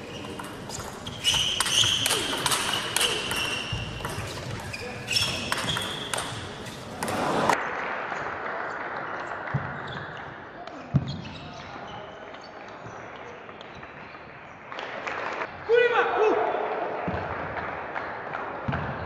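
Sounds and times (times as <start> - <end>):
shoes squeaking on floor: 0.0 - 7.5, 9.7 - 10.3, 10.9 - 12.5
ball bounce: 0.2 - 7.2.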